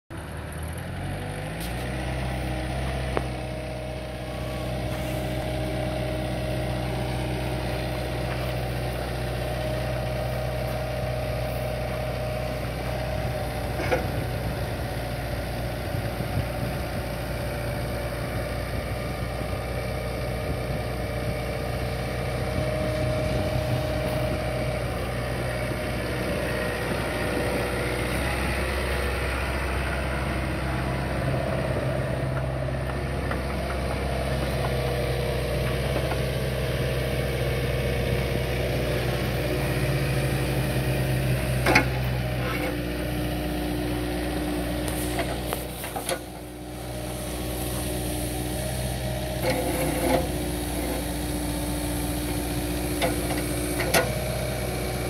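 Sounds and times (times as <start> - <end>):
diesel engine idling: 0.1 - 55.0.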